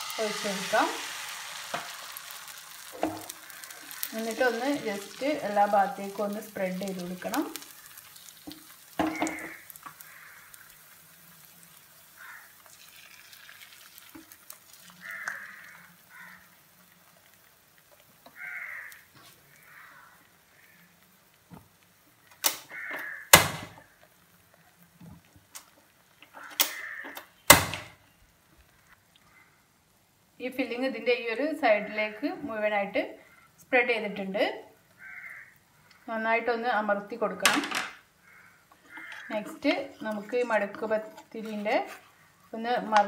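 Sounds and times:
batter sizzling in oil: 0.0 - 29.2, 38.0 - 43.0.

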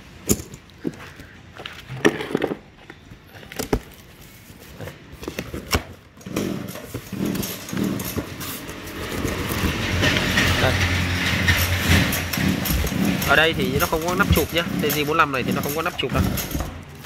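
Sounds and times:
packing tape tearing: 3.3 - 10.7.

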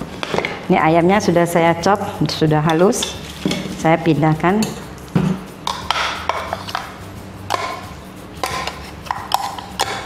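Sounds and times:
spoon knocking against bowls: 4.6 - 10.0.

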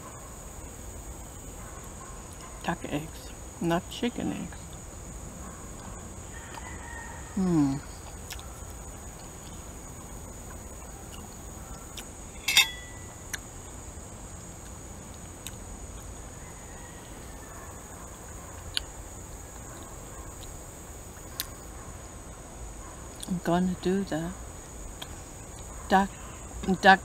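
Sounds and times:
steady high-pitched whine: 0.0 - 27.0
mouth clicks while eating: 8.0 - 8.5, 25.0 - 25.7.

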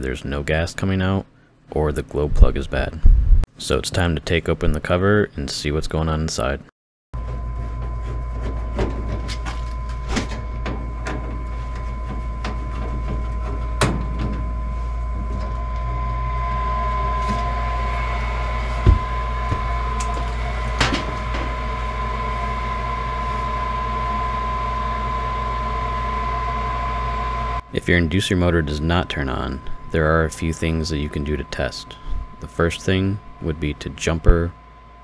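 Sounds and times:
furnace mechanical hum: 0.0 - 35.0
loud thump: 18.8 - 19.7.

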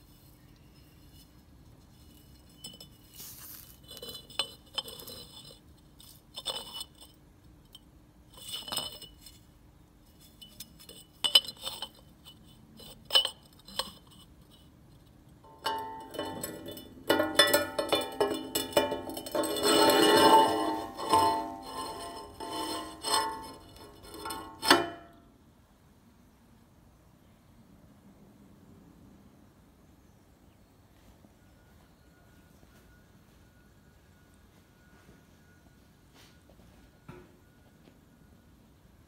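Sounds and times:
steel tube clinking on steel: 0.6 - 25.2.

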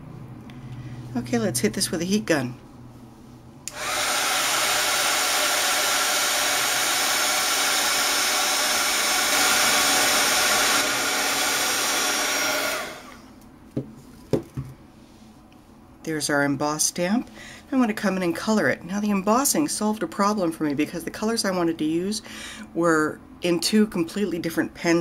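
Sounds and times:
heat gun blowing air: 3.7 - 13.3.

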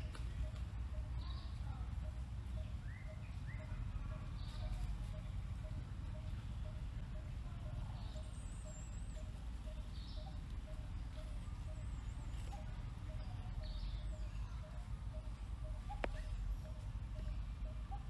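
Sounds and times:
bird repeating low note: 0.0 - 18.0
low rumble of wind: 0.0 - 18.0
high whistled bird calls: 7.9 - 18.0.

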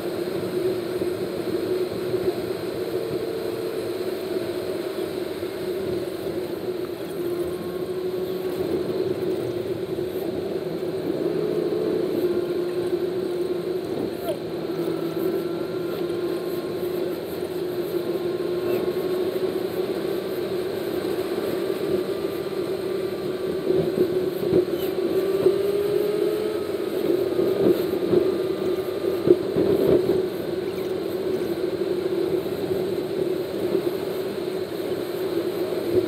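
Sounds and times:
engine and tyre noise: 0.0 - 36.0.

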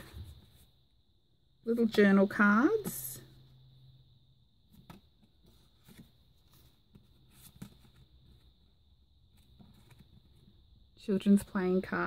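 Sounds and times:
paper and card rustling: 4.7 - 8.6.

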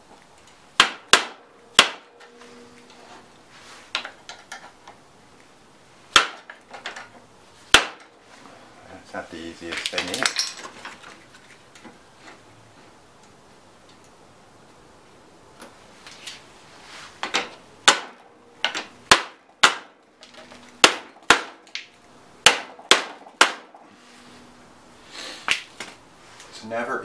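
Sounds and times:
hammer striking steel pin: 0.8 - 3.0, 22.4 - 23.8.

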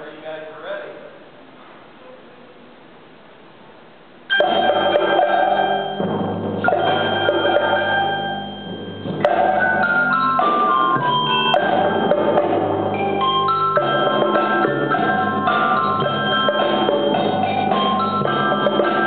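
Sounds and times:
marimbas: 4.3 - 19.0
timpani: 4.3 - 19.0
xylophones: 4.3 - 19.0.

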